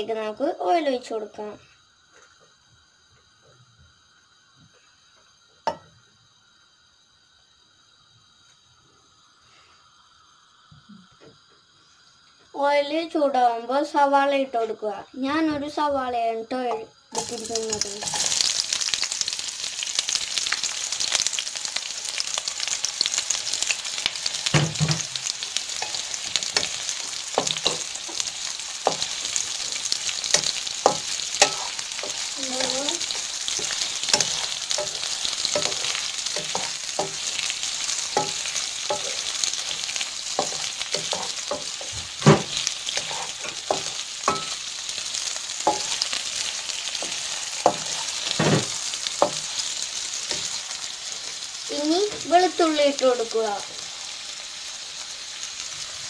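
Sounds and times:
onions sizzling in oil: 0.0 - 56.0
spatula knocking and scraping pan: 25.8 - 44.6, 45.6 - 49.7.

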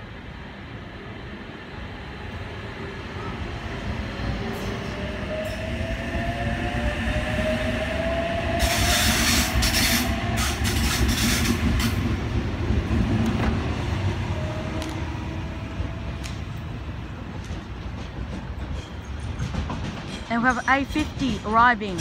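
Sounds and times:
rushing noise and wheel clatter: 3.6 - 22.0.

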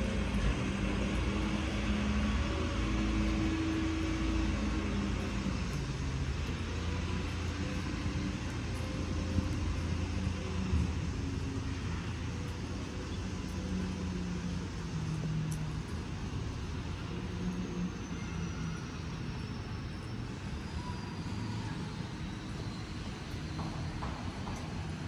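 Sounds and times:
low engine rumble: 0.0 - 21.8
urban street ambience: 0.0 - 25.0
faint high whine: 16.3 - 24.0.

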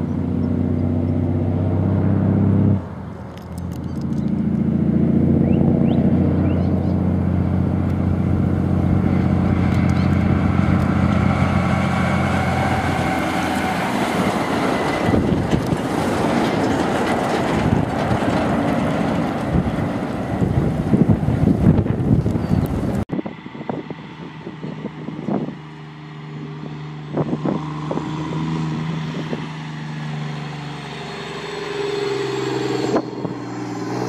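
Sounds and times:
truck diesel engine droning: 0.0 - 34.0
tyres rolling past: 5.8 - 22.1.

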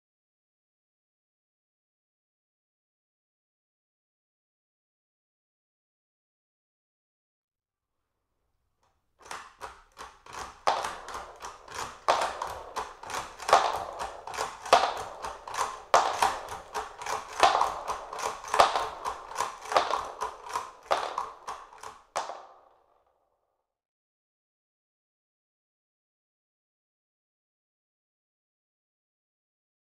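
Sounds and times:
rifle bolt clacking: 9.2 - 22.4.

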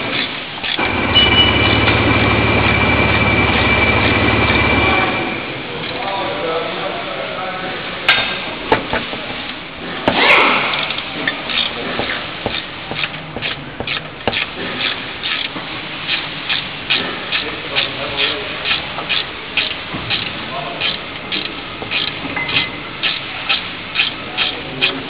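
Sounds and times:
wrench rasping on nut: 10.8 - 25.0.

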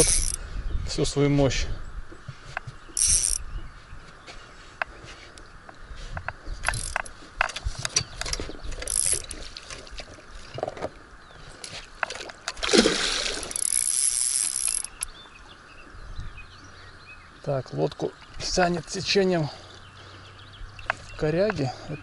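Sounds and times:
fishing reel drag clicking and buzzing: 0.0 - 0.4, 3.0 - 3.4, 6.6 - 9.4, 13.4 - 15.1.

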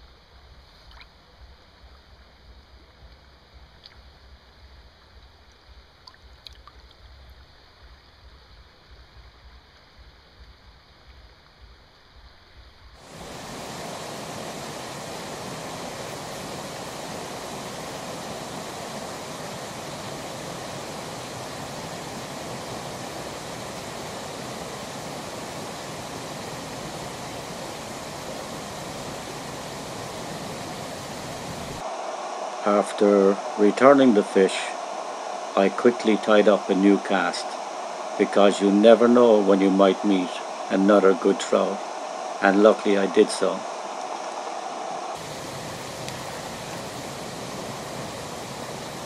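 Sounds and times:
quiet water sounds: 0.0 - 49.0
river water rushing: 13.0 - 49.0
faint clicks: 46.0 - 46.8.

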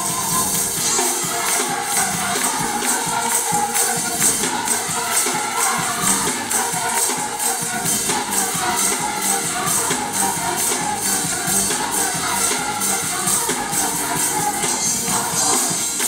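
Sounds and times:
gospel choir singing: 0.0 - 16.0
percussion beat: 0.0 - 16.0.

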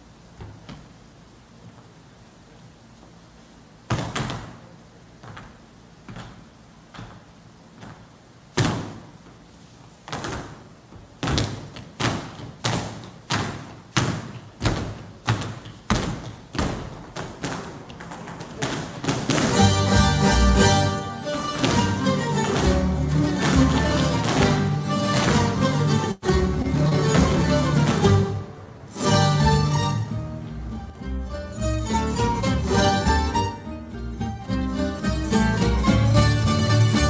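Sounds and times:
shoes stamping on wooden stage: 3.9 - 9.4, 10.0 - 28.5.

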